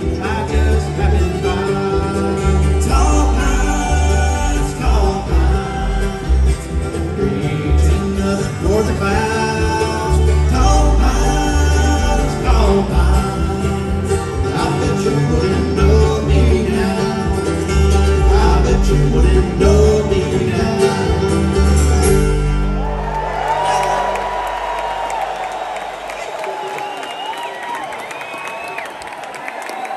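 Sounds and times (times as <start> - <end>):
person singing: 0.0 - 22.6
acoustic guitar: 0.0 - 24.7
mandolin: 0.0 - 24.9
upright bass: 0.0 - 25.1.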